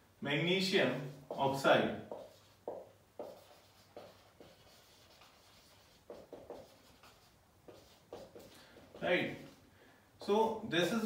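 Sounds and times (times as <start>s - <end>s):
marker writing on whiteboard: 1.1s - 9.6s.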